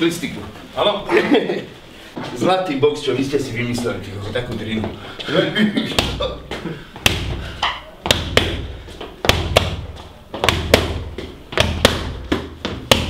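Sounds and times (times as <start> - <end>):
punches slapping focus mitts: 5.9 - 13.0.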